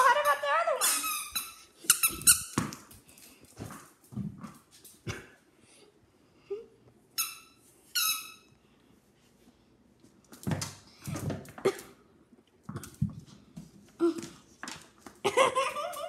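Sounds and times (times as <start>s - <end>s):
squeaky ball squeaks: 0.8s - 2.7s, 7.2s - 8.5s.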